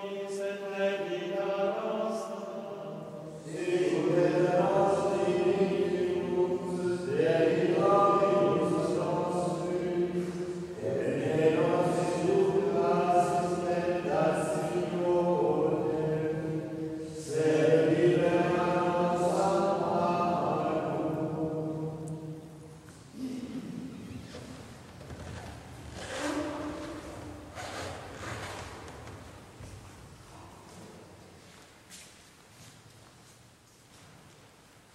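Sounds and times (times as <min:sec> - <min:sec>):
men singing chant: 0:03.5 - 0:22.0.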